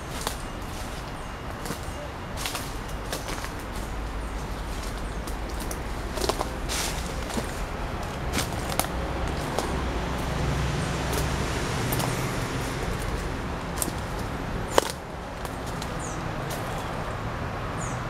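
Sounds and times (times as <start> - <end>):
footsteps on dry leaves and twigs: 0.0 - 17.9
low rumble of city traffic: 0.0 - 18.0.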